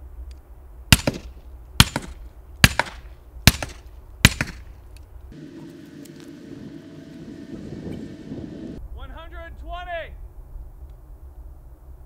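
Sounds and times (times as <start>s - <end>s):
suppressed rifle shots: 0.9s - 4.8s.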